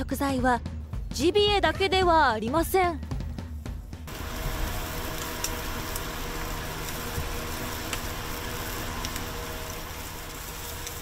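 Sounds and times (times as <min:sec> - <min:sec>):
steady low hum: 0:03.6 - 0:11.0
fish sizzling on a grill: 0:04.1 - 0:11.0.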